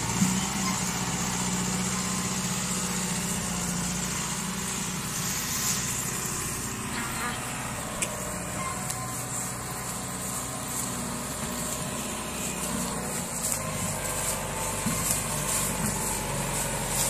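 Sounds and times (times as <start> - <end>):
tractor diesel engine under load: 0.0 - 17.0.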